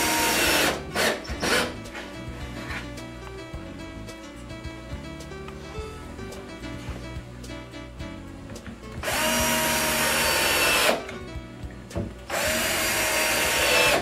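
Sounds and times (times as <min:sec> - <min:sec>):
cordless drill driving screws: 0:00.0 - 0:01.7, 0:09.0 - 0:11.0, 0:12.3 - 0:14.0
background music: 0:00.0 - 0:14.0.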